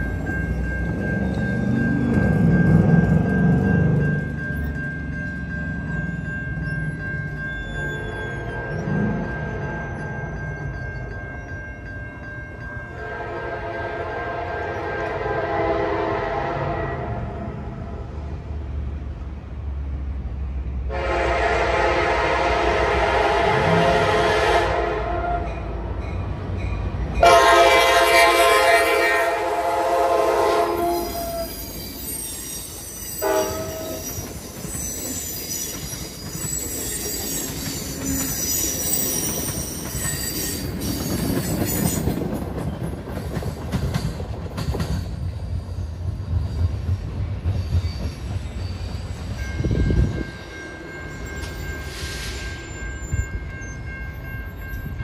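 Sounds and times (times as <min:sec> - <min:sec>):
train wheels on rails: 0:00.0 - 0:55.0
high-pitched wheel squeal: 0:07.3 - 0:10.2, 0:30.8 - 0:42.1
train horn blasts: 0:13.0 - 0:17.6, 0:20.9 - 0:25.6, 0:27.2 - 0:31.6, 0:33.2 - 0:34.1.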